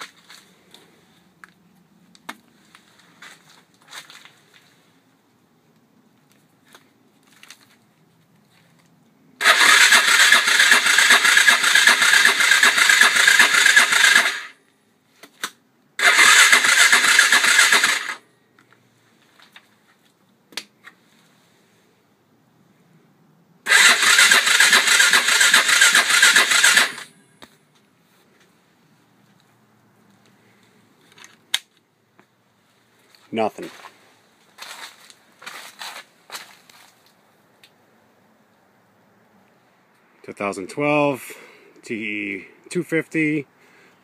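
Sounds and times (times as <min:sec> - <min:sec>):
electric starter cranking engine: 0:09.4 - 0:14.6, 0:16.0 - 0:18.2, 0:23.6 - 0:27.1.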